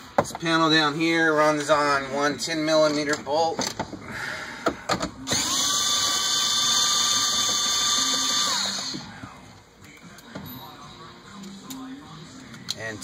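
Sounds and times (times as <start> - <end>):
cordless drill motor running: 5.3 - 9.0.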